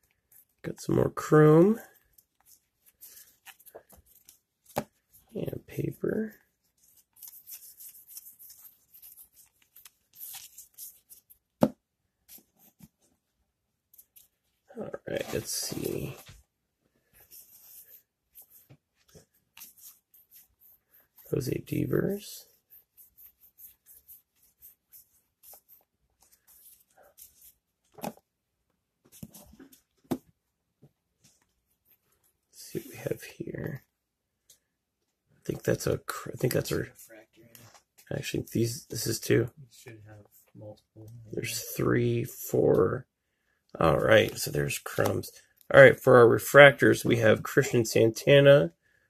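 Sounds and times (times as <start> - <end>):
cards rustling and scraping: 0.0 - 13.2, 13.9 - 16.4, 17.0 - 28.3, 29.0 - 30.3, 43.9 - 46.1.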